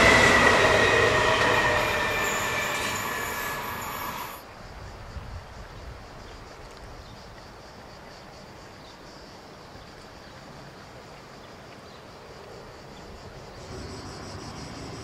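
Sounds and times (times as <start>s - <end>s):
distant train rumble: 0.0s - 4.4s, 13.5s - 15.0s.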